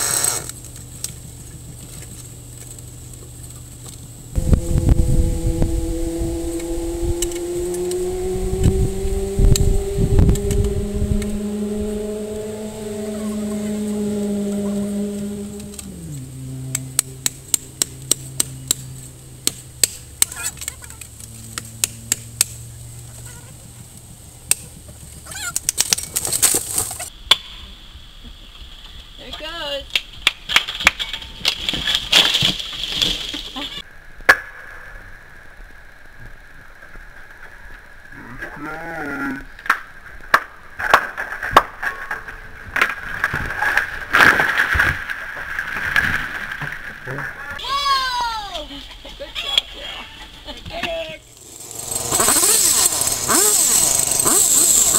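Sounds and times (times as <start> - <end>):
chainsaw idling: 0.0 - 0.6, 51.2 - 54.9
wood cracking and popping: 25.4 - 27.1, 29.9 - 33.5
tree top snapping and falling: 25.5 - 27.1, 30.0 - 33.6, 39.7 - 47.0
tree top crashing to ground: 30.5 - 33.6.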